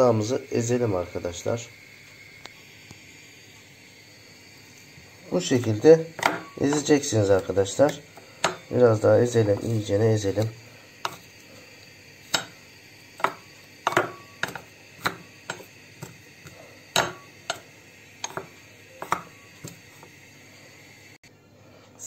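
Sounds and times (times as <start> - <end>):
spoon knocking metal bowl: 6.2 - 7.0, 12.3 - 12.6, 13.2 - 15.7, 16.9 - 17.6.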